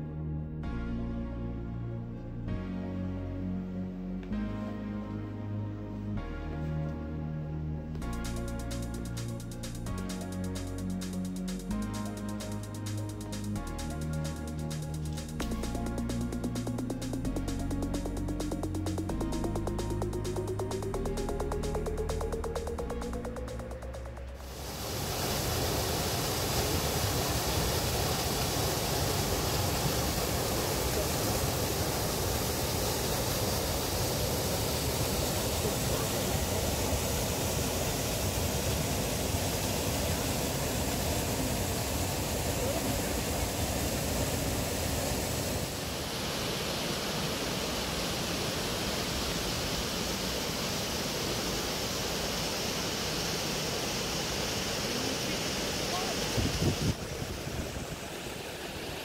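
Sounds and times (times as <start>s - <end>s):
waterfall rushing: 12.0s - 59.0s.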